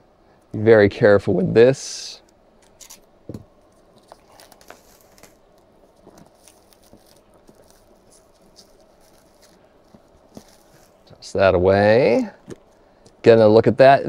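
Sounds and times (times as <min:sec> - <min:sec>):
plastic wrap crinkling and tearing: 0:02.6 - 0:11.1.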